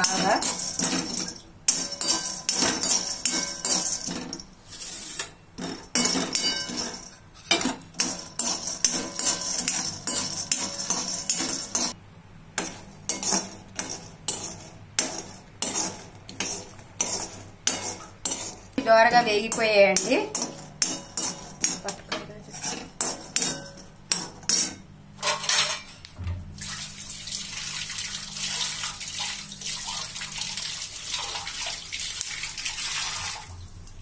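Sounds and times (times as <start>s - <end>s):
nuts rattling against a pan: 0.0s - 4.5s, 8.0s - 12.0s
metal spoon scraping a pan: 0.0s - 12.0s, 12.6s - 26.1s.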